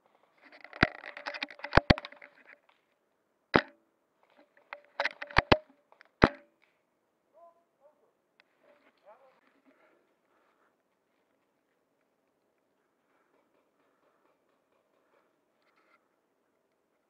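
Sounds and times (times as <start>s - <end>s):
airsoft gun cracks: 3.6s - 3.8s, 4.8s - 6.5s.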